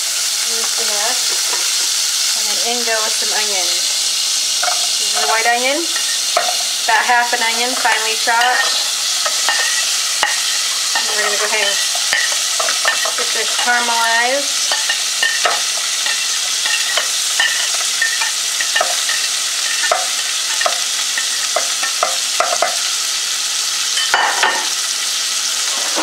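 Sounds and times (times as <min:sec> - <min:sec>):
onion sizzling in butter: 0:00.0 - 0:26.0.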